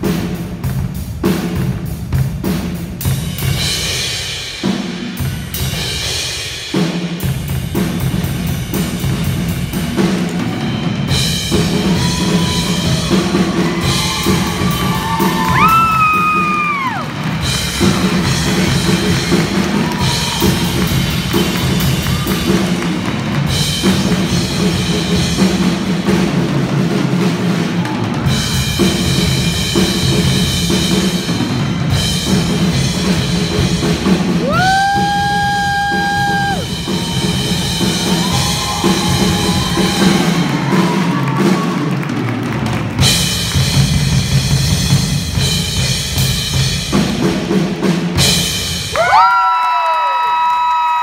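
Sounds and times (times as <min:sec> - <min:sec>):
drum solo: 0:00.0 - 0:49.4
audience cheering: 0:11.7 - 0:24.0, 0:27.5 - 0:28.6, 0:34.4 - 0:43.1, 0:48.9 - 0:51.0.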